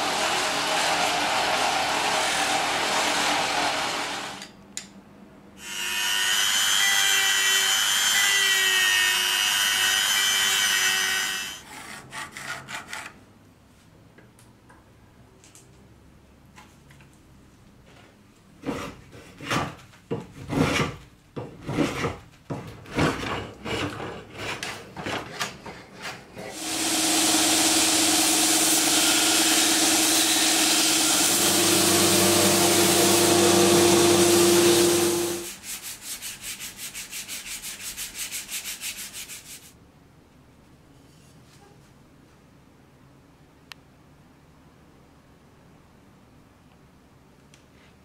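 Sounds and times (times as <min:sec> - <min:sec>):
hand plane shaving wood: 0:11.7 - 0:13.2
belt grinder running: 0:26.6 - 0:35.5
sanding block on wood: 0:26.6 - 0:39.8.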